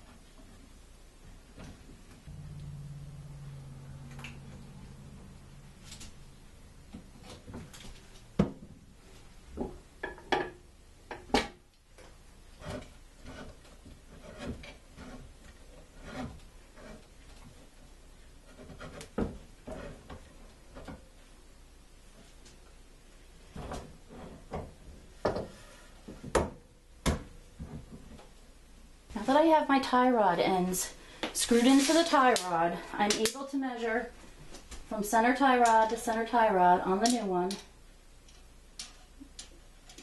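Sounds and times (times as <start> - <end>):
metal rod scraping on wood: 12.5 - 17.5, 18.4 - 20.3.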